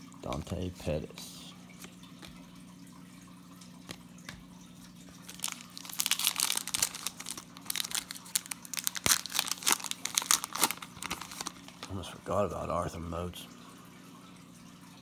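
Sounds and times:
plastic wrapper tearing and crinkling: 5.2 - 12.0.

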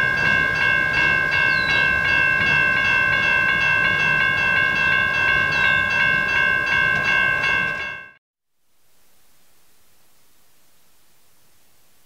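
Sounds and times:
train cars rumbling past: 0.0 - 8.1
crossing bell ringing rapidly: 0.0 - 8.2.

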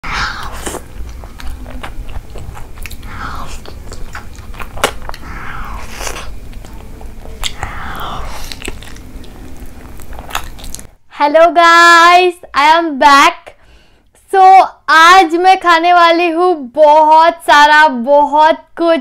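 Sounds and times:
mouth clicks: 0.1 - 10.9
chewing food: 0.3 - 10.9.

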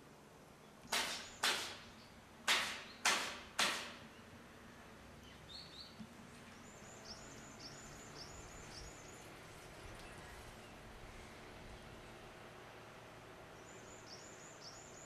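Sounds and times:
loud sharp bangs: 0.9 - 4.0.

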